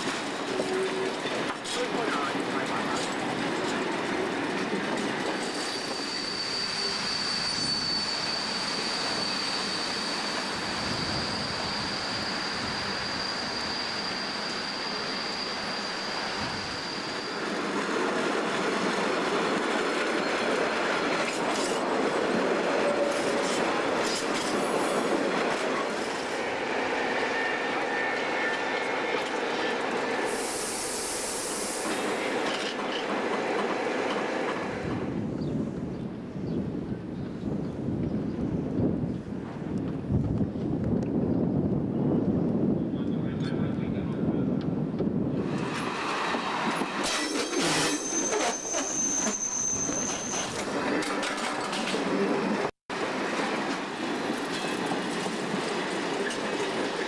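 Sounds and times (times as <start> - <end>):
high steady wheel squeal: 5.2 - 18.0, 22.8 - 33.0, 46.7 - 52.0.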